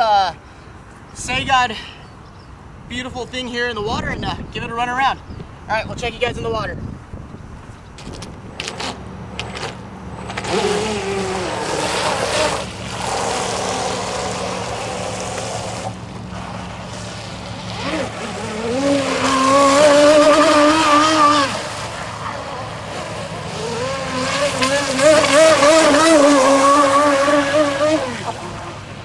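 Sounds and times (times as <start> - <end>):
electric motor whining: 8.0 - 29.0
boat hull hissing through spray: 10.3 - 29.0.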